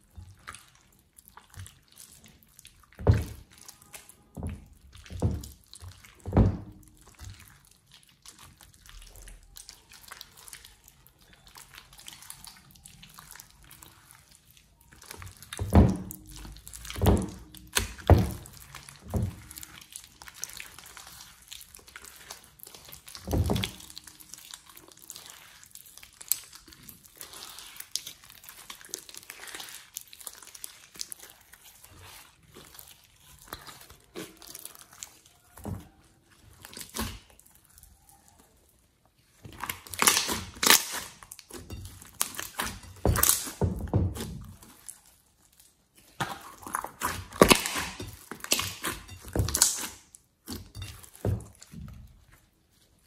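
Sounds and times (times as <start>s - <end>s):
slime squelching by hand: 0.0s - 53.0s.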